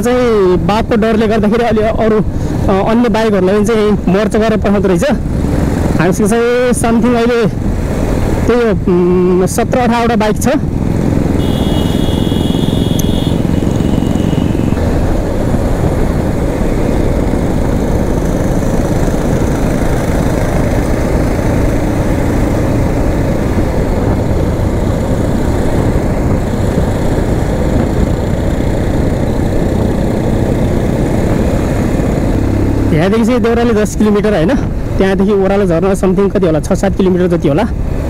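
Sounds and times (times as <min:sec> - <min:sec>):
motorcycle engine running: 0:10.6 - 0:33.0
faint high tone: 0:11.4 - 0:14.8.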